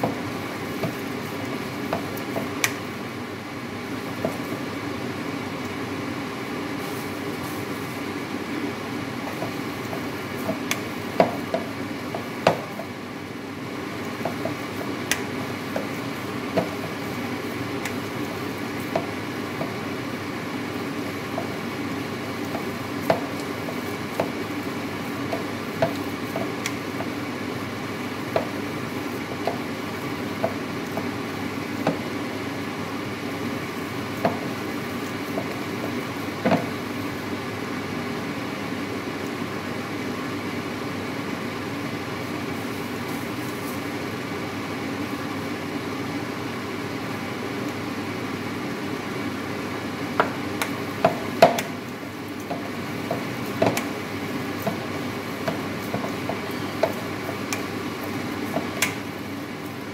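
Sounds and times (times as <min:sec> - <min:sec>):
steady background hum: 0:00.0 - 0:59.9.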